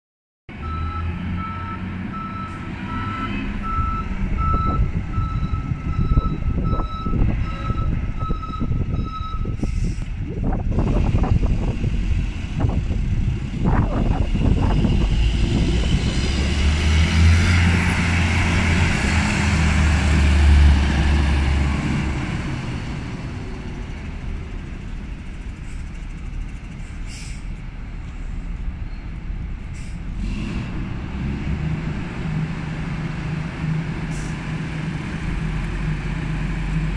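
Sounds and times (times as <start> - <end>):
reversing alarm beeping: 0.6 - 9.6
tractor diesel engine running: 21.4 - 30.2.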